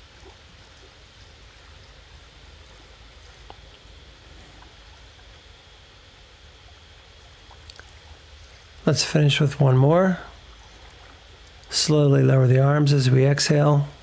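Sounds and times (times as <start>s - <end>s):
faint ticks: 0.1s - 5.6s, 6.6s - 8.8s.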